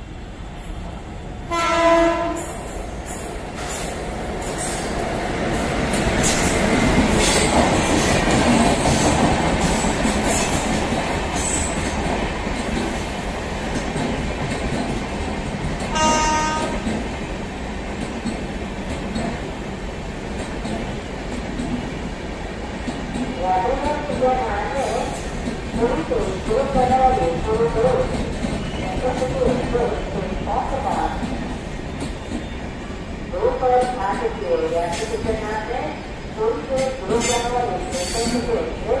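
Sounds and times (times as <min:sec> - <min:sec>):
train air horn blast: 0:01.5 - 0:02.6, 0:15.9 - 0:16.8
train wheels clattering over rails: 0:02.4 - 0:29.8.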